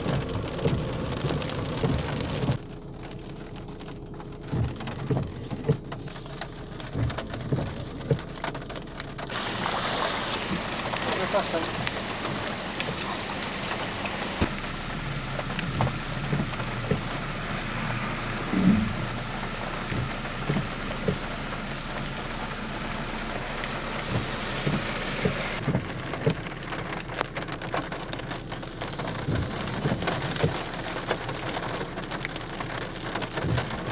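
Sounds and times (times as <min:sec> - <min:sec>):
heavy rain pouring: 0:00.0 - 0:33.9
raindrops ticking on car roof: 0:00.0 - 0:33.9
low thumps: 0:11.7 - 0:25.8.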